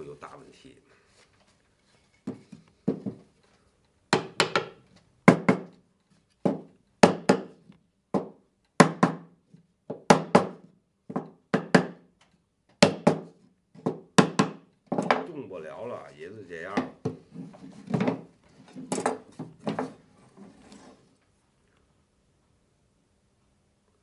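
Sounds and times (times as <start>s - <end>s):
wooden frame knocking on workbench: 2.3s - 3.3s, 4.1s - 5.7s, 6.4s - 7.5s, 8.1s - 9.3s, 9.9s - 12.0s, 12.8s - 15.3s.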